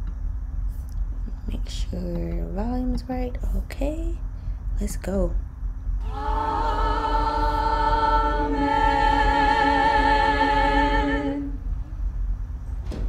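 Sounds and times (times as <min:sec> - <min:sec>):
choir singing a hymn: 0:06.0 - 0:11.7.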